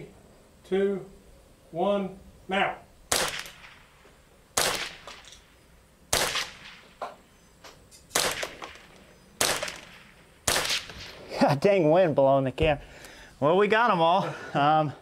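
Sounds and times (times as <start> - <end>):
rifle shots with echo: 3.1 - 4.0, 4.6 - 5.5, 6.1 - 7.0, 8.1 - 11.2.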